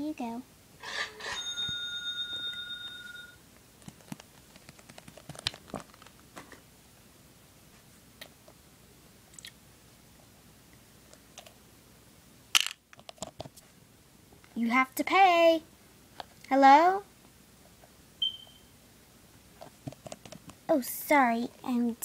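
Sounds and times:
small bell ringing: 0:01.1 - 0:03.4.

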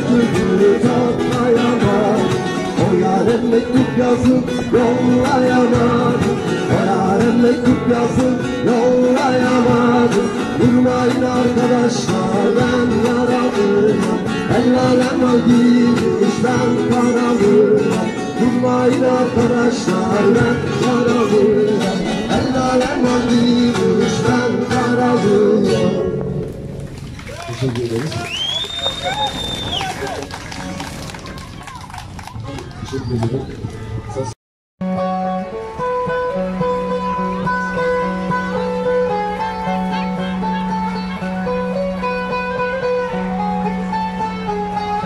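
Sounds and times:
man singing into a microphone: 0:00.0 - 0:26.4
acoustic guitar strummed and picked: 0:00.0 - 0:27.0, 0:34.8 - 0:45.0.

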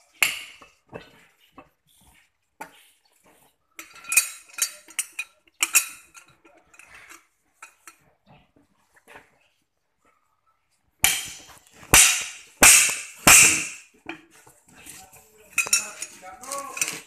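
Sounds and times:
metal parts and tools clinking: 0:03.8 - 0:08.0, 0:14.8 - 0:17.0.

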